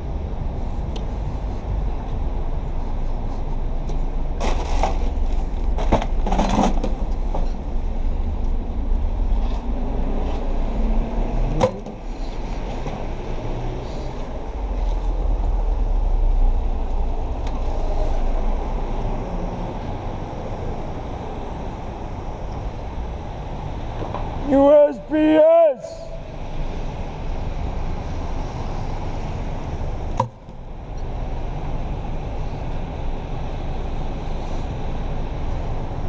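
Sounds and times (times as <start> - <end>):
cars passing on wet road: 0.0 - 36.0
low traffic rumble: 0.0 - 36.0
knocks and rustles: 4.4 - 7.6.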